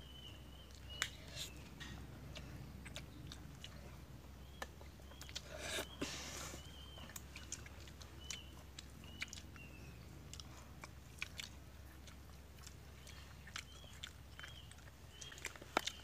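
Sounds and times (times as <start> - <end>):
chewing and mouth clicks: 0.5 - 6.0, 6.6 - 16.0.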